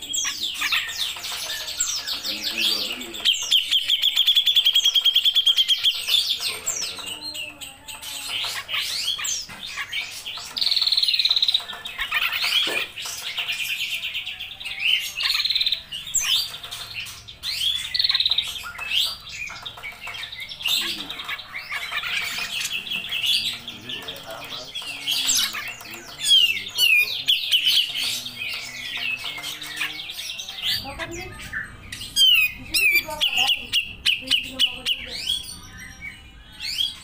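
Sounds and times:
bird chattering calls and trills: 0.0 - 37.0.

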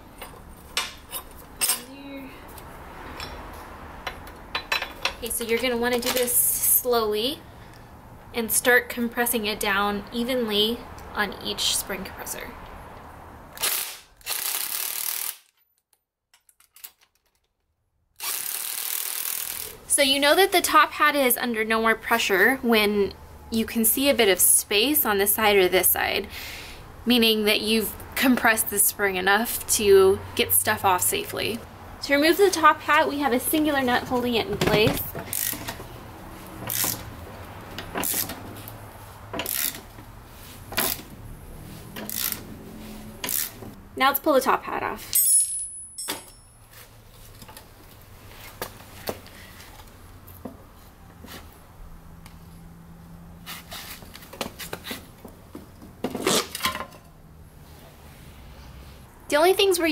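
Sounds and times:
ratchet wrench clicking: 13.6 - 15.5, 18.2 - 19.8, 35.3 - 35.8, 36.7 - 37.1, 39.4 - 39.8, 42.0 - 42.4, 43.2 - 43.6
cordless power tool bursts: 18.2 - 19.7.

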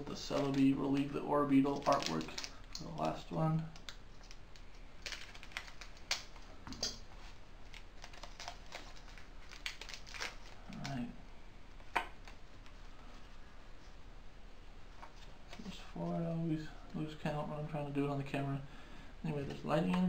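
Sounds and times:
foil wrapper crinkling: 0.0 - 6.4, 7.6 - 11.1.

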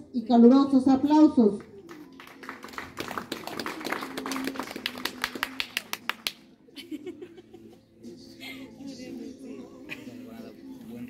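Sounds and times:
small audience applauding: 1.6 - 6.5.

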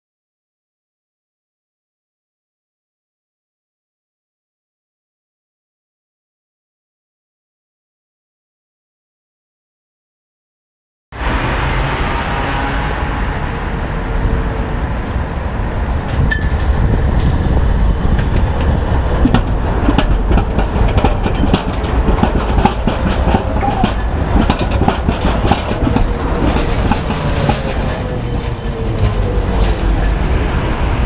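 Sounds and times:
tram rumble: 11.2 - 31.0
wheels clattering over rail joints: 16.0 - 30.7
high wheel squeal: 23.3 - 24.8, 25.4 - 30.1.

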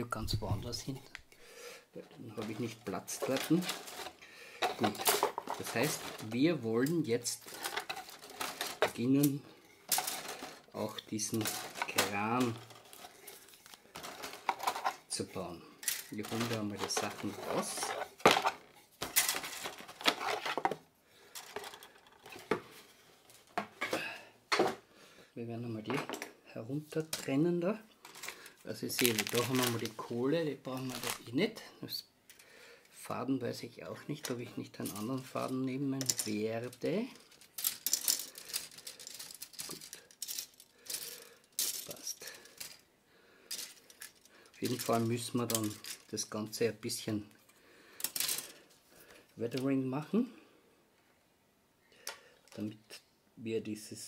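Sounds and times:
plastic parts clicking and rattling: 2.1 - 24.8, 27.0 - 27.4, 28.0 - 30.0, 30.6 - 31.2, 34.1 - 42.9, 43.5 - 46.3, 47.3 - 49.7
cardboard rustling: 2.2 - 6.6, 16.1 - 20.8, 28.8 - 30.1, 30.7 - 31.2.

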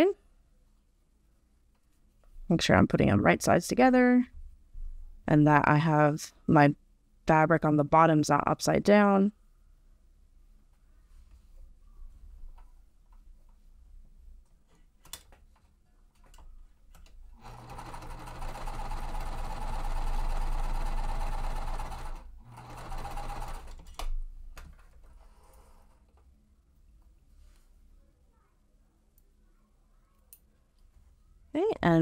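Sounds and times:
sewing machine stitching: 17.4 - 24.0.

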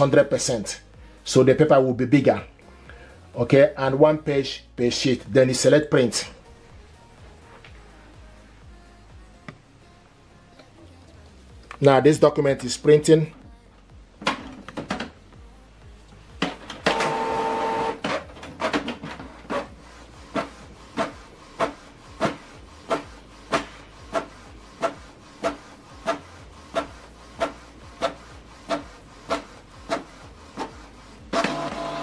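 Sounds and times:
printer motor whir: 16.8 - 32.0.

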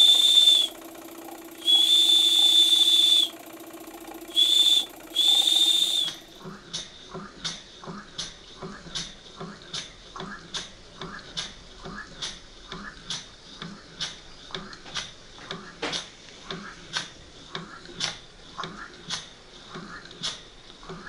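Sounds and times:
toy steam engine chuffing: 0.0 - 6.7
sharp steam puffs: 1.6 - 3.3, 4.3 - 6.2.

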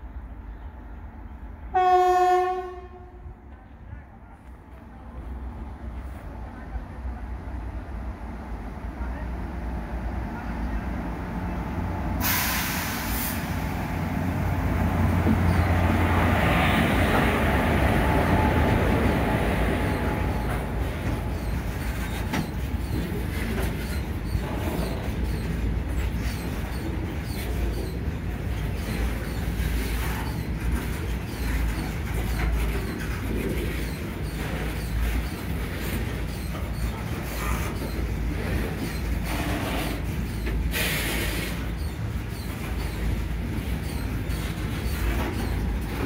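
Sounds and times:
electric locomotive hum: 0.0 - 46.0
freight wagons rumbling: 11.0 - 46.0
wheels clattering over rail joints: 14.9 - 46.0.

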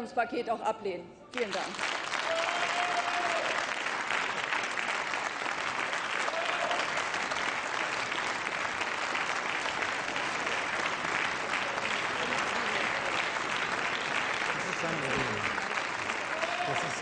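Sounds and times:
crowd applauding: 1.4 - 17.0.

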